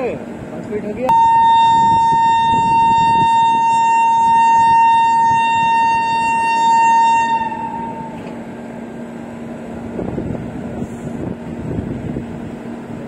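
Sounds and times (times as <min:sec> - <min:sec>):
train hum and rumble: 0:00.0 - 0:13.0
locomotive horn: 0:01.1 - 0:08.4.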